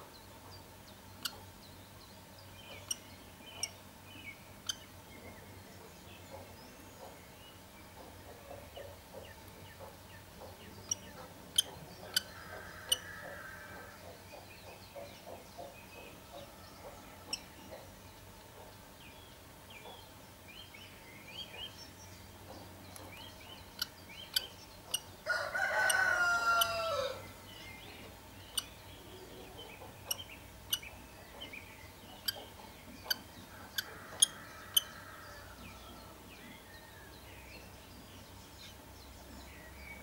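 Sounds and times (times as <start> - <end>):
rooster crowing: 25.2 - 27.2.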